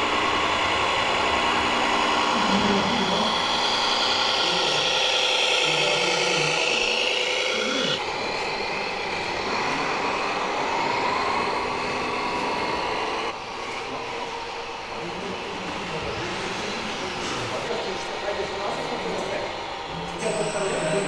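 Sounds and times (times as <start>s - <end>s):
model truck drive whining: 0.0s - 14.0s.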